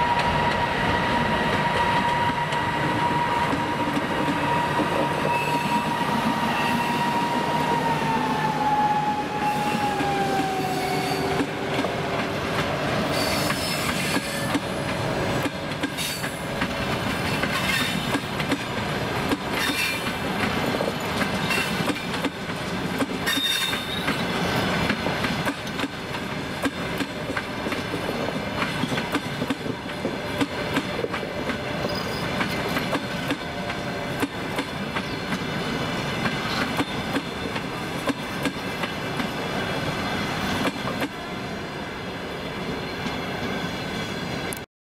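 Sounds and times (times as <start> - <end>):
train wheels squealing: 0.0 - 11.5, 13.1 - 14.9, 17.2 - 18.2, 19.5 - 22.1, 23.2 - 24.9, 31.8 - 32.9, 36.3 - 37.9, 42.8 - 44.5
electric locomotive whine: 0.0 - 44.7
train wheels clicking over rail joints: 1.4 - 5.3, 11.3 - 39.4, 40.3 - 41.2.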